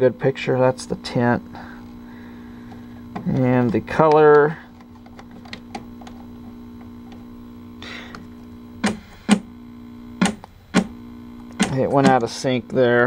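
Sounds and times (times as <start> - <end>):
television mains hum: 0.0 - 13.0.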